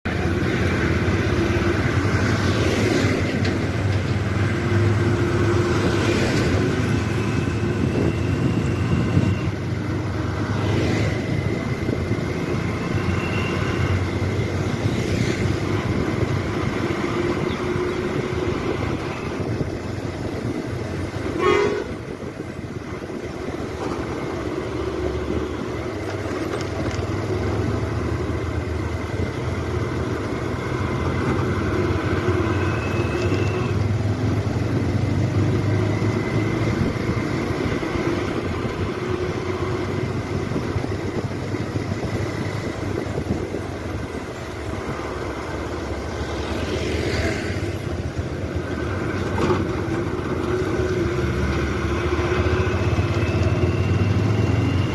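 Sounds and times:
engine and road noise: 0.0s - 54.9s
vehicle horn: 21.2s - 22.2s.

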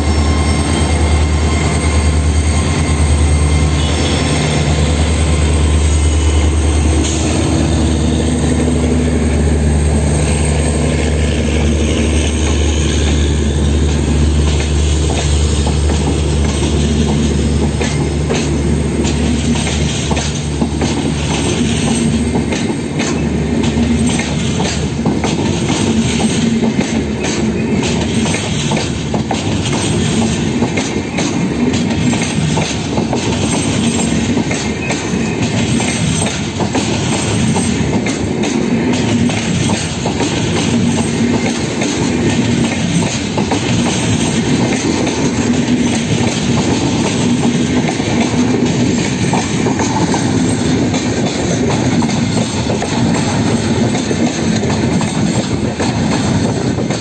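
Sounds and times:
clickety-clack from track: 0.0s - 57.0s
train wheels rumbling on rails: 0.0s - 57.0s.

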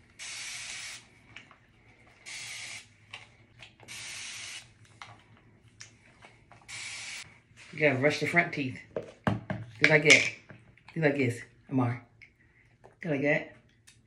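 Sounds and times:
spray bottle hissing bursts: 0.2s - 1.0s, 2.3s - 2.9s, 3.9s - 4.7s, 6.7s - 7.2s.

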